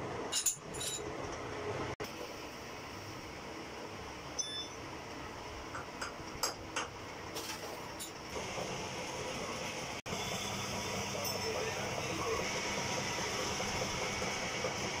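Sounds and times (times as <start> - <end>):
metal lathe running: 8.4 - 15.0.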